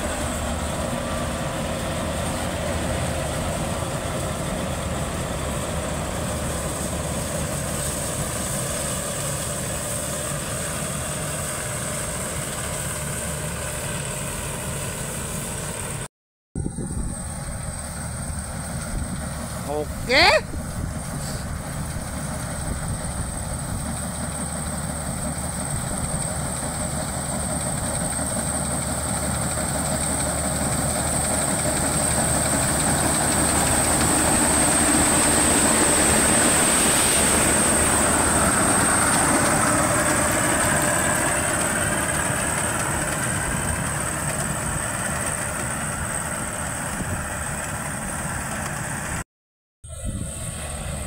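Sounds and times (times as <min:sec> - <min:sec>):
combine harvester engine: 0:00.0 - 0:49.2, 0:49.9 - 0:51.0
high-pitched machine whine: 0:16.6 - 0:49.2, 0:49.9 - 0:51.0.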